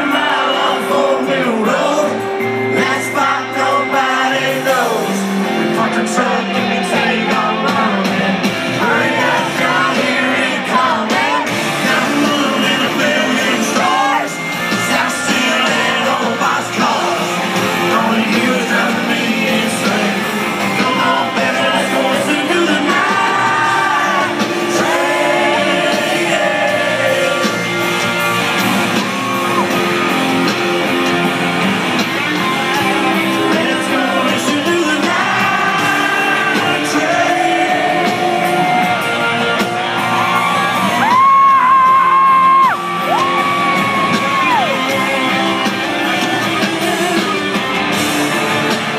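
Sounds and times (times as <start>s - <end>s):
man singing: 0.0s - 28.0s, 32.4s - 39.6s, 44.0s - 47.8s
live country-rock band: 0.0s - 48.9s.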